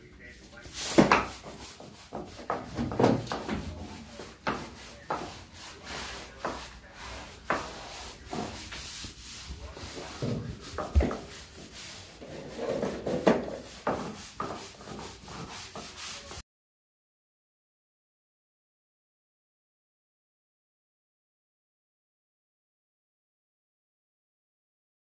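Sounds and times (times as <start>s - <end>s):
hand scrubbing a wall: 0.2s - 16.4s
knock: 2.2s - 3.7s.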